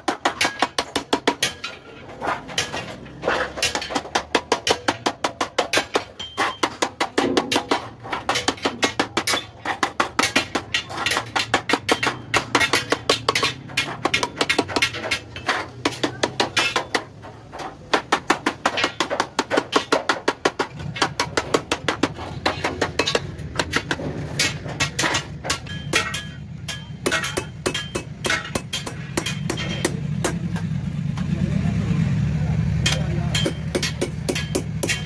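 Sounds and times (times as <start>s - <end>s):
hammer tapping punch on metal sheet: 32.8s - 35.0s.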